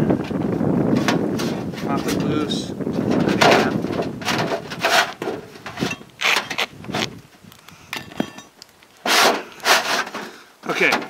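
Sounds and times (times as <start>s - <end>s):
metal scraping against shingles: 0.9s - 11.0s.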